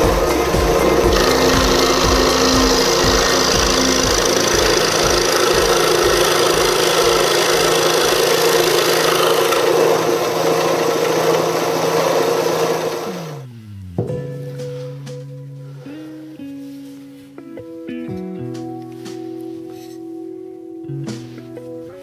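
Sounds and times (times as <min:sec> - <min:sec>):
power tool cutting wood: 0:00.0 - 0:13.5
motor winding down: 0:00.0 - 0:13.6.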